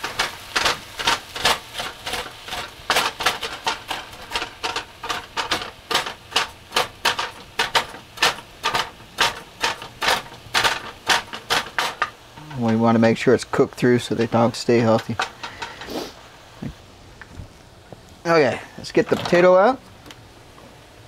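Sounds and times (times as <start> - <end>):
spatula scraping a frying pan: 0.0 - 13.0, 14.0 - 16.2
meat sizzling: 0.0 - 20.4.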